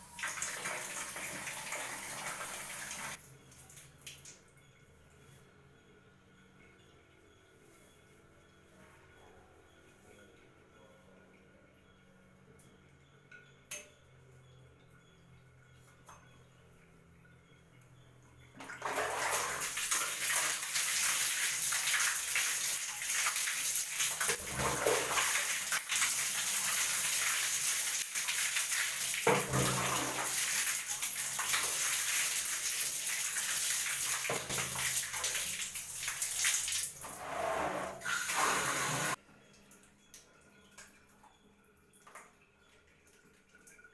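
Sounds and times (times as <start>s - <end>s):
water running and splashing: 0.0s - 3.2s, 18.8s - 37.1s.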